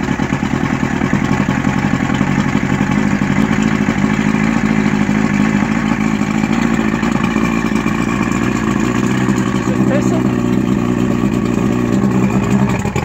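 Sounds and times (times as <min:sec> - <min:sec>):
engine running steadily: 0:00.0 - 0:13.0.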